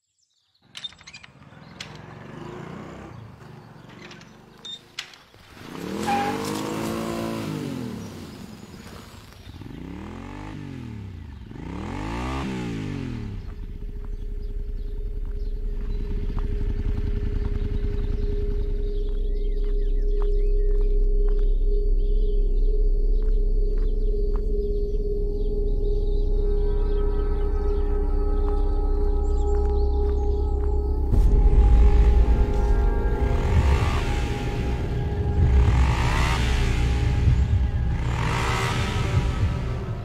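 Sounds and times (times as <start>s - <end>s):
motorcycle engine revving: 1.4s - 40.0s
steady low hum: 13.3s - 40.0s.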